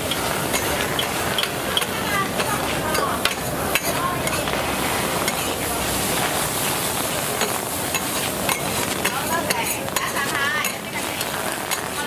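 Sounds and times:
metal spatula scraping and tapping: 0.0s - 4.6s, 5.2s - 5.6s, 7.4s - 12.0s
food sizzling on griddle: 0.0s - 12.0s.

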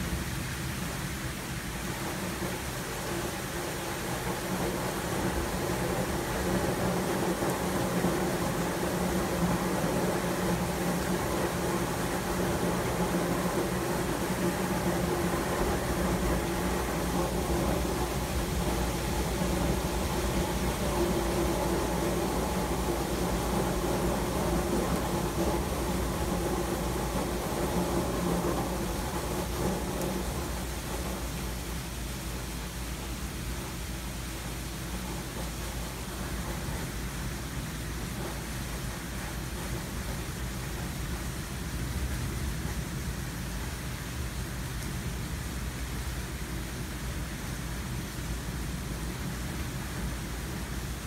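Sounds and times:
rain hissing: 0.0s - 51.0s.

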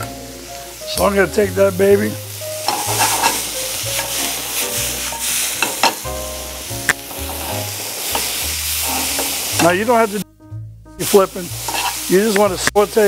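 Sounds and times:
vegetables sizzling in skillet: 0.0s - 10.2s, 11.0s - 13.0s
metal tongs clicking on pan: 2.6s - 3.4s.

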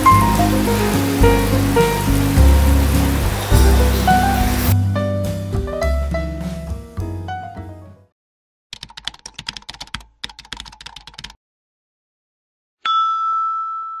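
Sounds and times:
music: 0.0s - 8.1s
rapid keyboard typing clicks: 8.7s - 11.4s
bright chime ringing: 12.8s - 14.0s.

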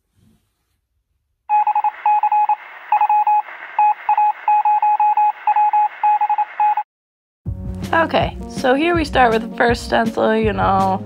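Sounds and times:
electronic beeps: 1.5s - 6.8s
radio static hiss: 1.7s - 6.8s.

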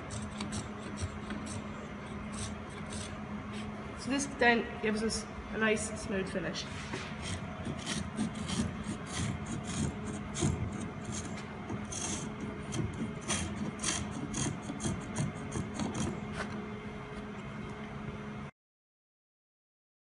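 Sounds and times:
spokeshave rasping on wood: 0.0s - 3.7s, 6.3s - 16.6s.

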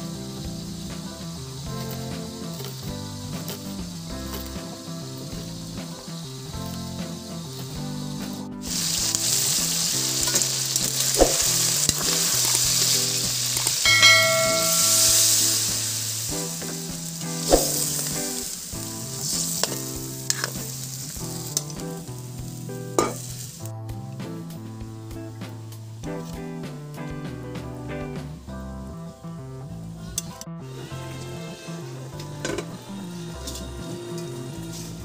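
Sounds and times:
food sizzling in hot oil: 0.0s - 23.7s, 30.6s - 35.0s
short chime: 13.8s - 15.6s
utensil knocking on a pan: 13.8s - 15.9s.

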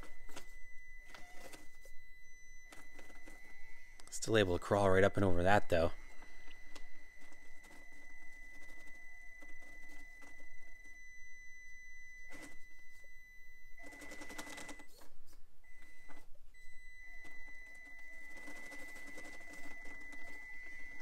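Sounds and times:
toy car motor whine: 17.8s - 21.0s.

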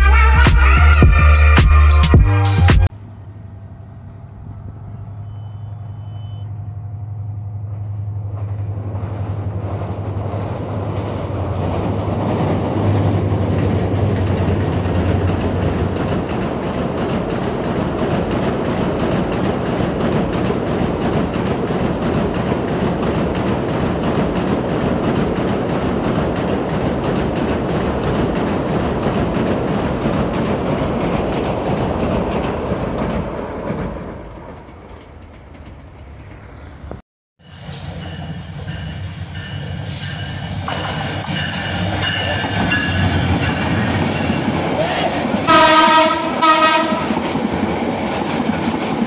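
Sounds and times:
intro music: 0.0s - 2.9s
diesel locomotive engine hum: 2.3s - 49.0s
train wheels rumbling on rails: 4.0s - 49.0s.

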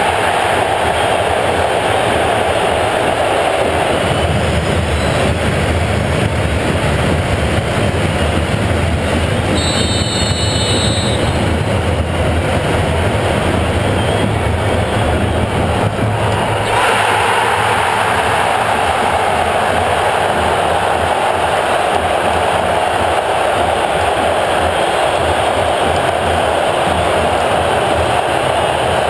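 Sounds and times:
stadium crowd noise: 0.0s - 29.0s
high whistle: 9.5s - 11.4s, 14.0s - 14.4s.

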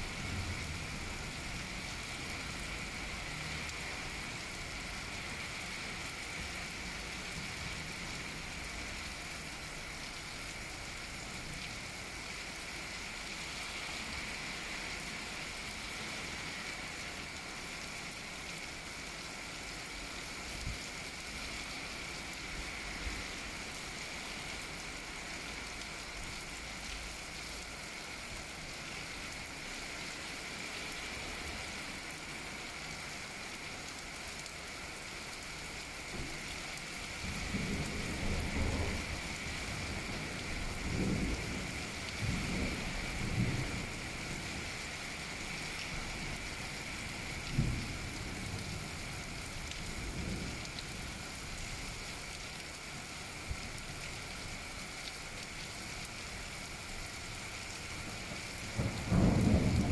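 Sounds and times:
steady rain falling: 0.0s - 59.9s
thunder rumbling: 58.8s - 59.9s.

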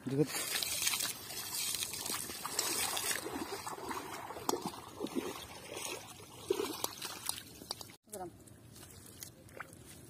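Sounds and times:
feet wading through water and mud: 0.0s - 10.0s
water trickling: 0.3s - 8.0s.

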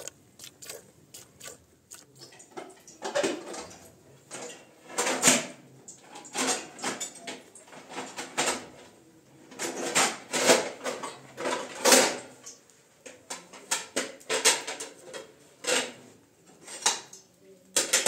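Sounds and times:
dishes and pans clattering: 2.1s - 8.9s, 9.5s - 12.5s, 13.1s - 17.2s, 17.8s - 18.0s.

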